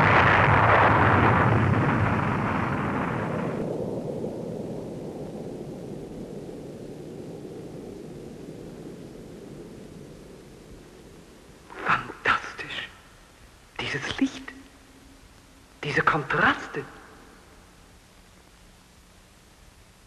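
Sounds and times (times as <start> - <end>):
rocket launch roar: 0.0 - 5.0.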